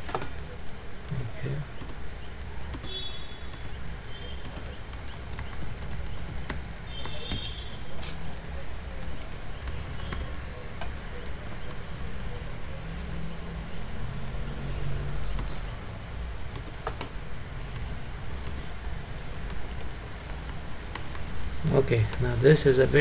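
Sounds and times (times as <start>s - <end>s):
keyboard and mouse clicks: 1.0s - 2.0s, 2.6s - 3.8s, 4.4s - 8.4s, 9.0s - 12.5s, 16.5s - 18.8s, 19.4s - 22.2s.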